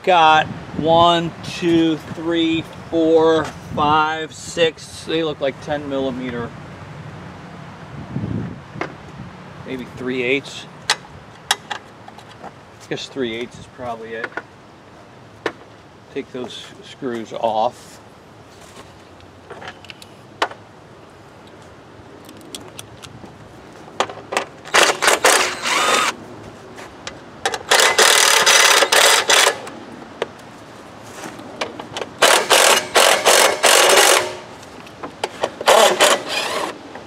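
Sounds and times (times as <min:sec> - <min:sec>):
cordless drill running: 0:24.8 - 0:26.2, 0:32.2 - 0:34.4, 0:35.7 - 0:36.8.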